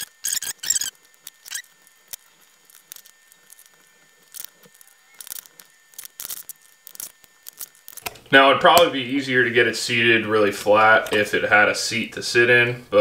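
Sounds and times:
high squeaky chirps and scratches: 0.0s - 8.1s.

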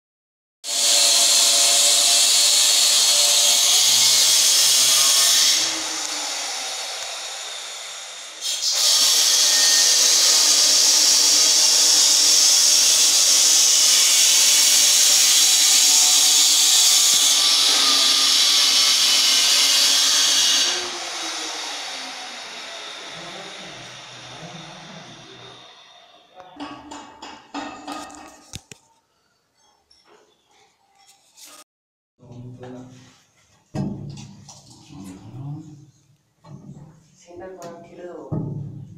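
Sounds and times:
power tool running high: 0.7s - 26.1s.

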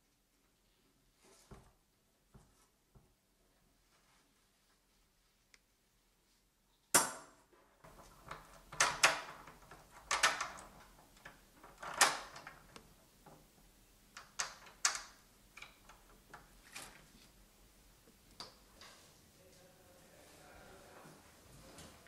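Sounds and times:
lock turning clicks: 7.9s - 12.9s, 14.1s - 16.4s.

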